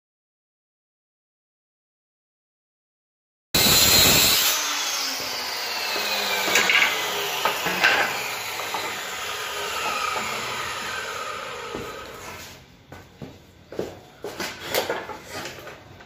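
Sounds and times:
circular saw cutting plywood: 3.6 - 12.6
saw blade spinning down whine: 3.6 - 12.6
plywood pieces knocking and clattering: 6.4 - 9.0.

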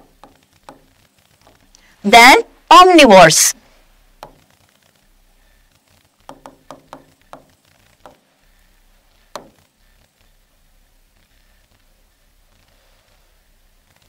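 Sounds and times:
stylus tapping on screen: 4.2 - 4.4, 6.2 - 8.2, 9.3 - 9.6.

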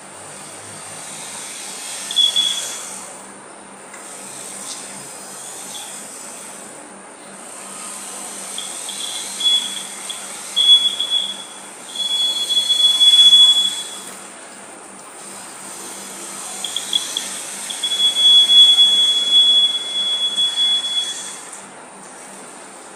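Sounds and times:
high buzzer beeps: 2.1 - 2.8, 8.6 - 14.1, 16.6 - 21.5
drive motors humming: 8.0 - 21.2.

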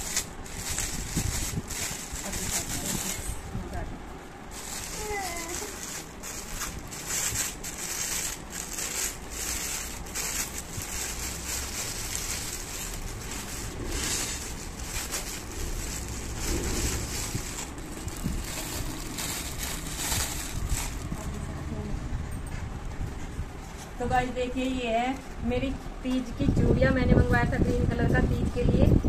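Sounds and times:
plastic wrapping crinkling: 0.0 - 3.5, 4.5 - 21.4.

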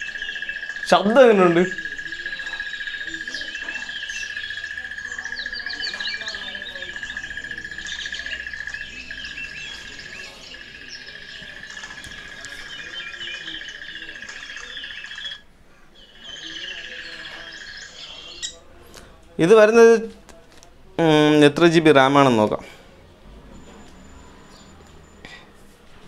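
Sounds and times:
high insect trill: 0.0 - 15.4
birds chirping: 0.0 - 20.2, 21.0 - 25.6.

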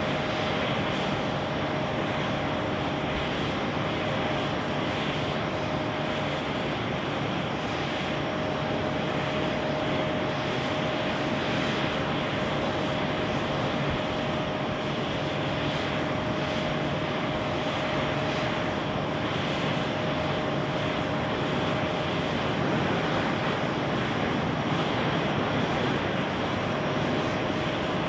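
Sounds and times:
jet engine rumble: 0.0 - 28.0
jet engine whine: 0.0 - 28.0.

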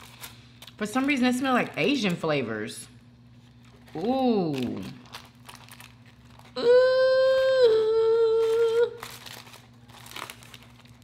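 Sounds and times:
aluminium foil crinkling: 0.0 - 2.3, 3.2 - 6.6, 8.2 - 11.0
woman humming: 6.6 - 9.1.

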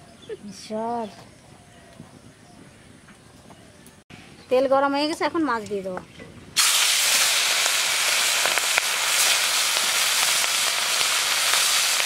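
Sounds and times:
fish frying in oil: 6.6 - 12.0
oil popping and crackling: 6.6 - 12.0.

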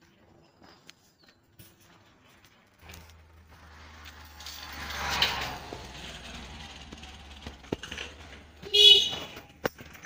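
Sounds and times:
motorcycle passing by: 2.8 - 9.6.

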